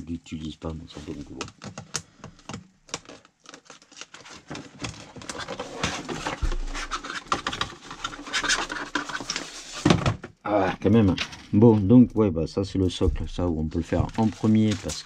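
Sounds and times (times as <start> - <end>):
cardboard and paper rustling: 0.9 - 10.3, 12.8 - 15.0.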